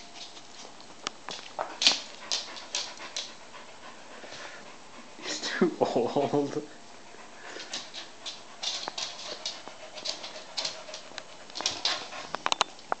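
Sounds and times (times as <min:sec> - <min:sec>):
dog scuffling and breathing: 0:00.0 - 0:04.9, 0:07.3 - 0:12.7.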